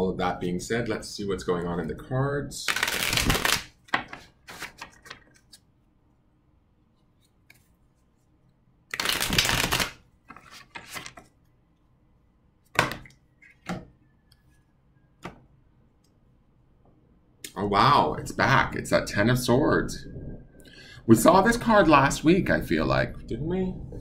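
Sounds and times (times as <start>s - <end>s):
cards shuffling: 2.7s - 5.6s, 8.9s - 11.4s
cards tapping and clicking: 2.7s - 5.6s.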